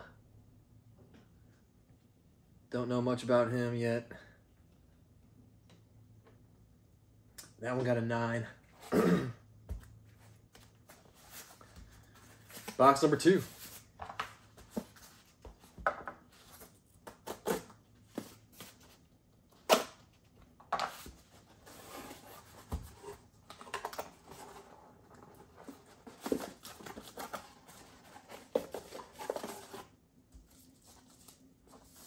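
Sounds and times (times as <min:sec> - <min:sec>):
tape tearing: 0:16.6 - 0:17.8.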